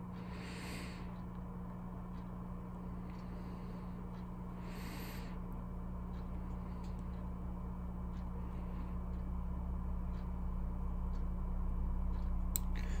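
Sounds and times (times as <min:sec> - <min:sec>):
low electrical hum: 0:00.0 - 0:13.0
faint light ticks: 0:10.1 - 0:10.4.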